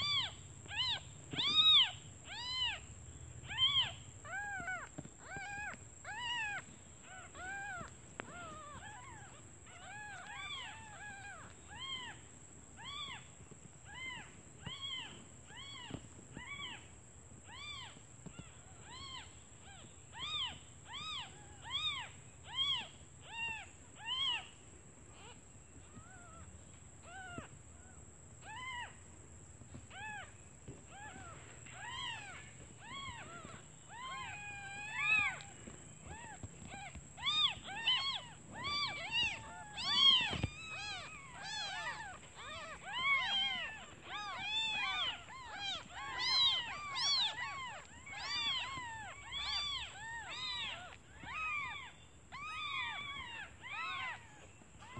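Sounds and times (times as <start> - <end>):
kittens mewing: 29.7 - 54.9.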